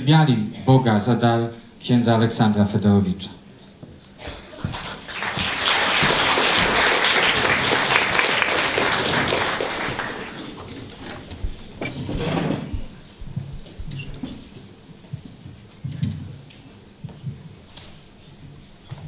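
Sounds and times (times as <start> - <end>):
audience applauding: 4.5 - 11.2.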